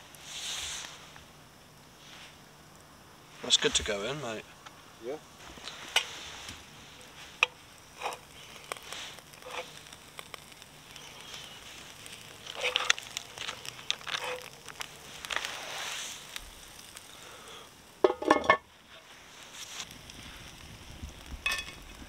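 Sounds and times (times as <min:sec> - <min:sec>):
campfire crackling: 0:00.0 - 0:22.0
cast iron lid clanking on pot: 0:18.0 - 0:18.7, 0:21.4 - 0:21.8.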